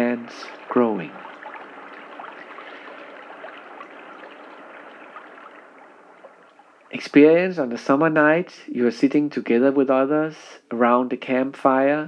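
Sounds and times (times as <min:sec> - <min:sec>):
water drips ticking: 0:00.0 - 0:07.4
water trickling: 0:00.0 - 0:08.2.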